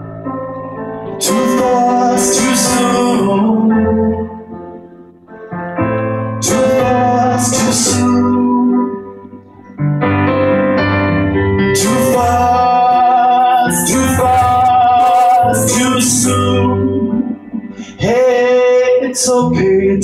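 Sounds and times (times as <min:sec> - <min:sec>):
stage piano accompaniment: 0:00.0 - 0:20.0
man singing: 0:01.1 - 0:04.6, 0:06.4 - 0:09.2, 0:11.7 - 0:20.0.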